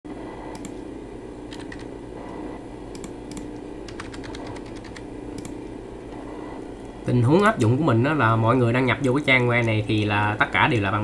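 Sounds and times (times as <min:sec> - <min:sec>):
low background hum: 0:00.1 - 0:11.0
keyboard keystrokes: 0:01.5 - 0:01.9, 0:02.9 - 0:05.6.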